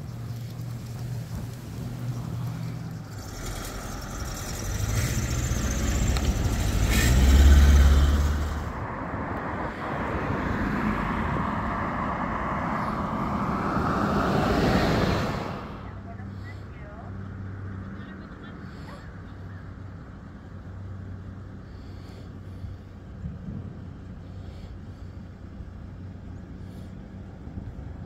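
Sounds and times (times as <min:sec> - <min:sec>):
car driving past: 0:00.0 - 0:19.0
road traffic passing: 0:00.0 - 0:28.0
truck approaching: 0:00.0 - 0:28.0.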